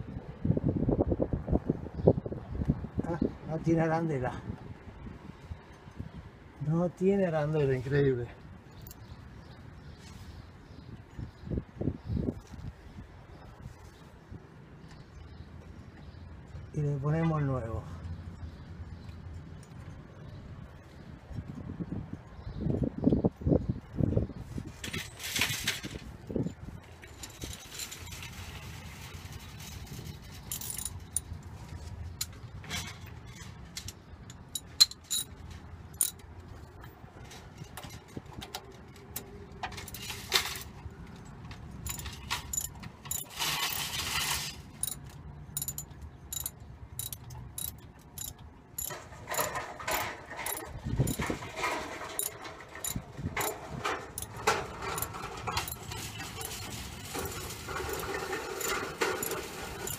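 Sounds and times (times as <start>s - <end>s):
metal tools clinking on bolt: 30.4s - 31.3s, 33.8s - 36.4s, 39.1s - 59.9s.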